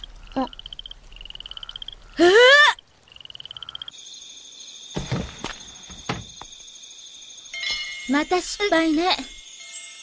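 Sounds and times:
soft thuds: 5.0s - 6.6s.

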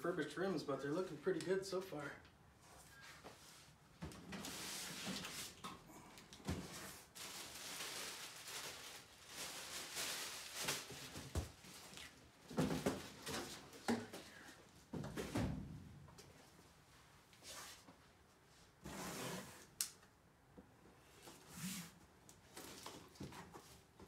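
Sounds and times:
packaging rustling and scraping: 6.6s - 12.2s.

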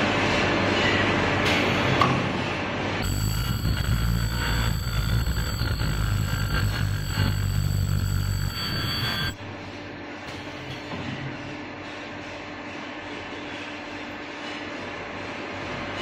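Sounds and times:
welding machine high-pitched whine: 3.0s - 9.6s.

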